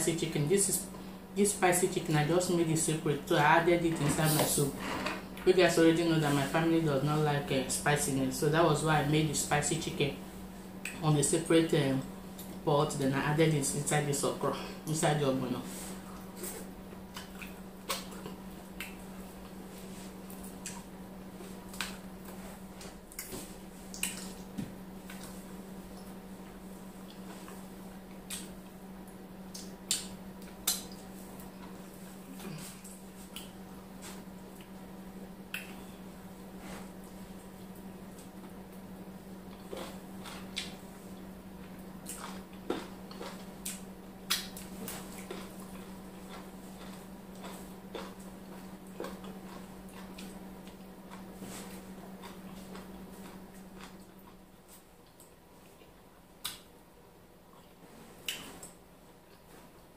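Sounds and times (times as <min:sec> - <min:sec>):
steady low hum: 0:00.0 - 0:59.9
lip smacking and chewing: 0:16.0 - 0:19.6, 0:23.1 - 0:25.3, 0:28.1 - 0:31.8, 0:35.5 - 0:35.8, 0:39.5 - 0:51.3
wet mouth clicks while chewing: 0:17.1 - 0:19.0, 0:23.1 - 0:24.4, 0:29.5 - 0:31.0, 0:35.5 - 0:35.8.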